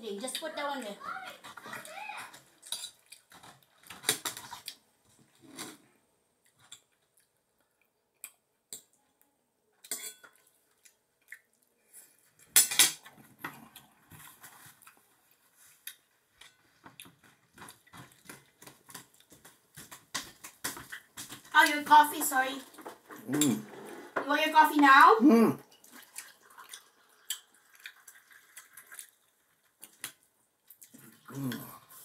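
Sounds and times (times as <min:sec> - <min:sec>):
spoon and dishes clinking: 0:09.9 - 0:10.4.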